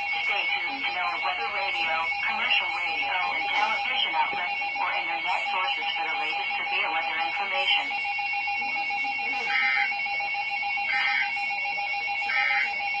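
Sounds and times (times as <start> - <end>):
steady high whine: 0.0 - 13.0
person speaking: 0.1 - 8.0.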